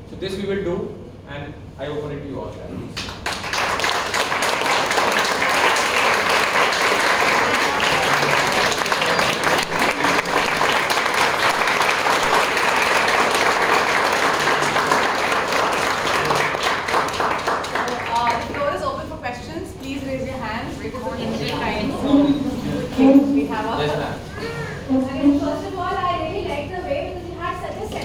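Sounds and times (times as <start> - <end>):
audience applauding: 3.0 - 18.9.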